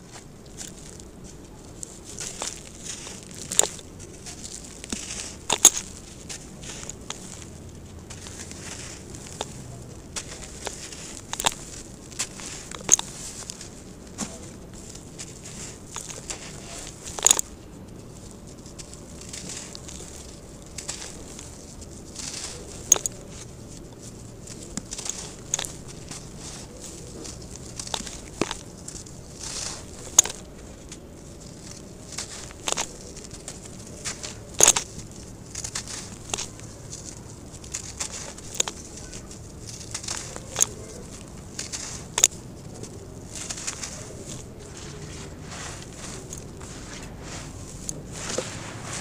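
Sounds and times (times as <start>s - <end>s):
gritty scraping and crackling: 0.0s - 49.0s.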